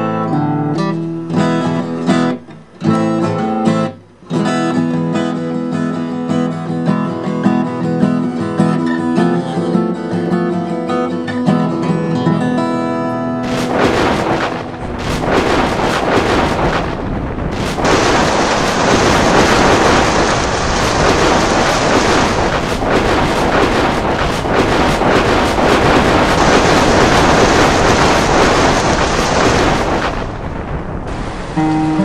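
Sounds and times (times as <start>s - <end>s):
thunder rumbling: 13.4s - 32.0s.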